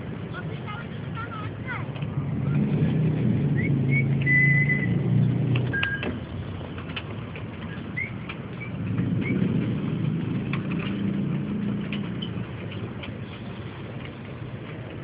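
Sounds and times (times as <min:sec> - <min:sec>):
high chirps and whistles: 0:03.5 - 0:05.0, 0:07.8 - 0:09.4
clicks: 0:05.5 - 0:09.4.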